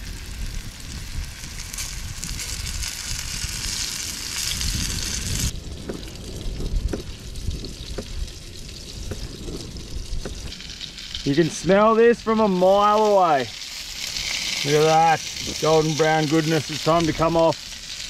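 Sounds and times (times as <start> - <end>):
low rumble: 0.0 - 12.6
fish sizzling in oil: 0.0 - 18.0.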